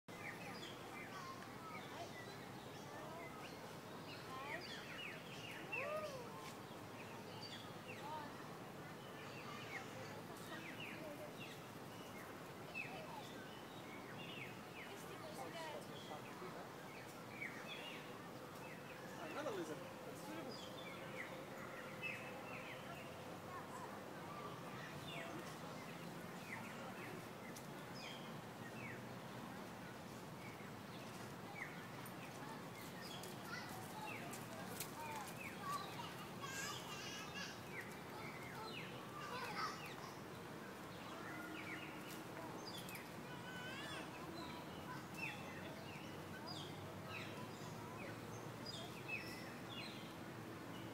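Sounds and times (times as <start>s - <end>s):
faint distant voices: 0.1s - 50.9s
birds chirping: 30.4s - 40.4s.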